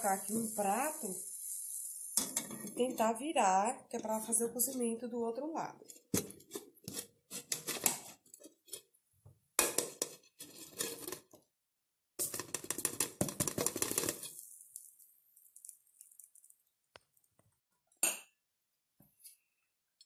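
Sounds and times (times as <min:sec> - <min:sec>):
frying pan clattering on ceramic plate: 0:12.3 - 0:14.4.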